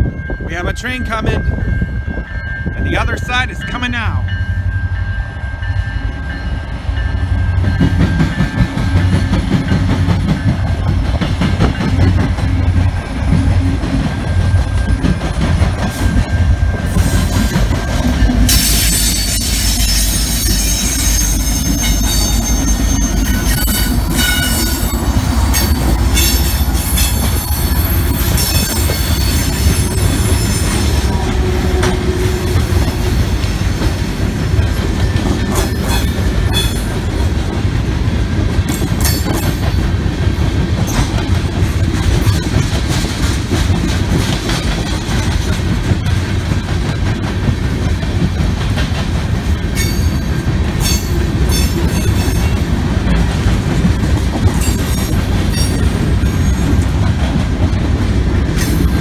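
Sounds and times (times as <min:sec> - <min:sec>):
freight train rumbling: 0:00.0 - 0:59.0
wheels clacking on rails: 0:00.0 - 0:59.0
high-pitched wheel squeal: 0:18.5 - 0:32.4.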